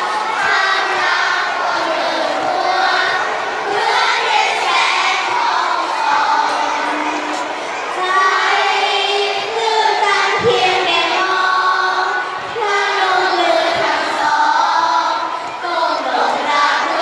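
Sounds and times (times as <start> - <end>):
children singing slow song: 0.0 - 17.0.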